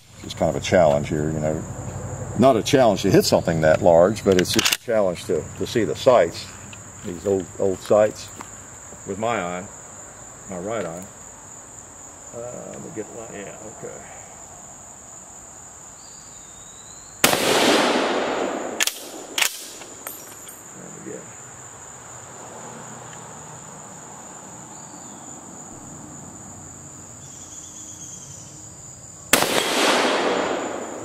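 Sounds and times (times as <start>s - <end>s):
insects droning: 0.0s - 31.0s
sharp rifle clicks: 4.3s - 4.9s, 17.2s - 20.6s
rifle shot echoing: 17.2s - 20.1s, 29.3s - 31.0s.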